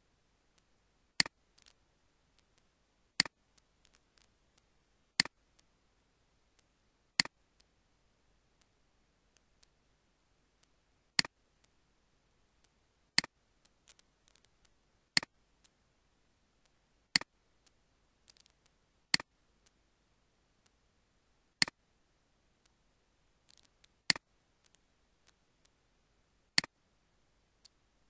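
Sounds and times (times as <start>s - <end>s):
faint clicks and taps: 0.6s - 5.7s, 6.5s - 7.7s, 10.6s - 11.8s, 12.6s - 15.8s, 16.6s - 19.8s, 21.6s - 21.8s, 23.4s - 25.8s, 26.5s - 26.8s.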